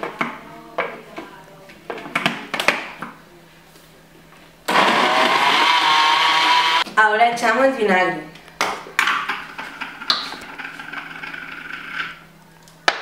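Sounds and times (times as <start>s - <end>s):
blender motor whining: 4.7s - 6.9s.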